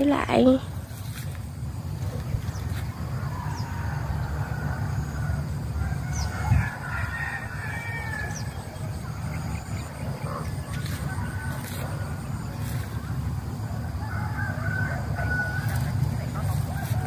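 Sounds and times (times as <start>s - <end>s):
rooster crowing: 3.1s - 8.9s, 13.8s - 16.1s.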